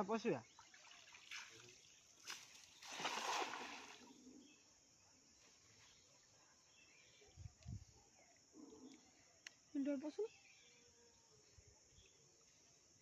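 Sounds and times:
cast net splashing on water: 0.6s - 4.1s.

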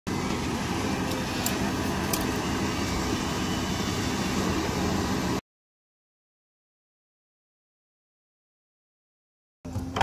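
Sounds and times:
excavator diesel engine running: 0.1s - 5.4s.

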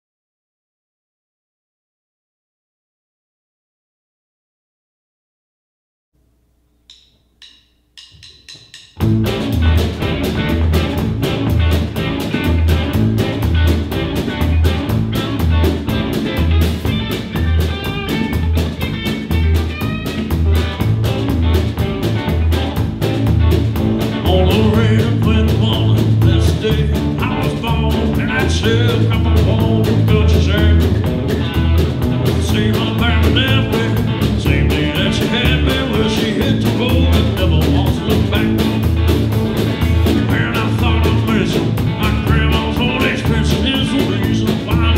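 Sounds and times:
drum kit beat: 6.8s - 44.9s
electric guitar: 9.0s - 44.9s
upright bass line: 9.0s - 44.9s.

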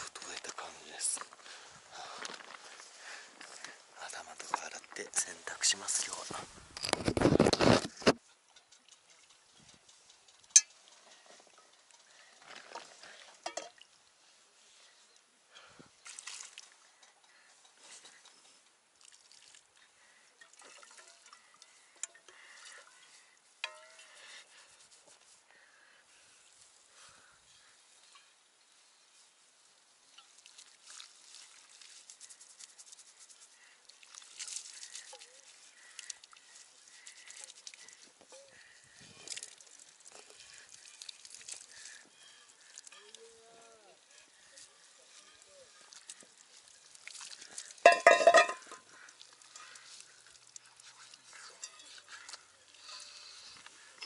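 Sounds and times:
water splashing into metal basin: 12.6s - 13.9s, 20.4s - 22.2s, 45.9s - 50.8s
water splashing onto hair and rocks: 16.0s - 16.8s, 18.9s - 19.8s, 30.1s - 38.3s, 39.1s - 43.2s, 45.8s - 52.3s
hands scrubbing wet hair: 30.3s - 38.1s.

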